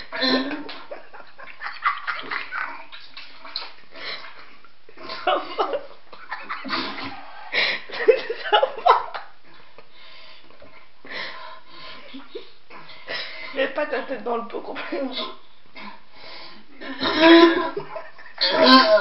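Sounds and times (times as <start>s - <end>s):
person retching into toilet: 0.1s - 0.9s, 18.4s - 19.0s.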